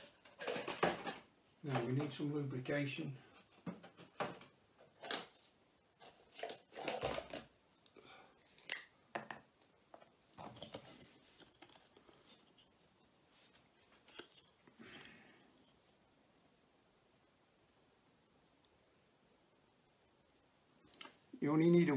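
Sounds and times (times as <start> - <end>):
clicks and rustles of handling: 0.0 - 2.3, 9.6 - 15.8.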